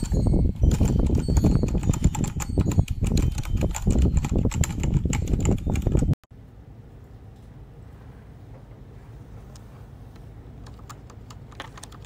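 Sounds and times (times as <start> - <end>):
fast typing on mechanical keyboard: 0.0 - 6.2, 10.6 - 12.0.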